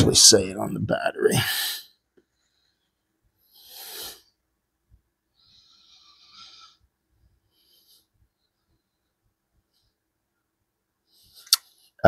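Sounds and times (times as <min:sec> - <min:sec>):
soft breath: 0:05.3 - 0:10.1.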